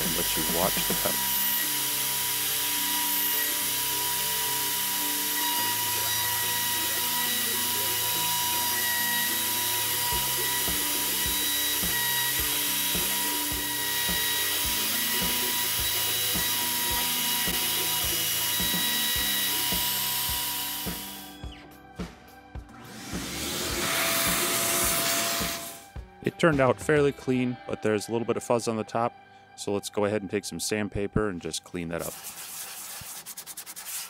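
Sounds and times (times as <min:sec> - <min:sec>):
router spindle whining: 0:00.0 - 0:21.7, 0:22.7 - 0:26.0
background music with beat: 0:07.3 - 0:27.8.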